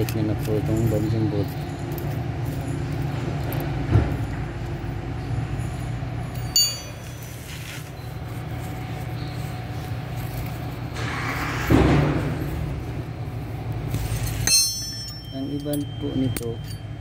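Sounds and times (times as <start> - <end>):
steady low hum: 0.0 - 17.0
sharp metallic clink ringing: 4.8 - 7.2, 14.0 - 17.0.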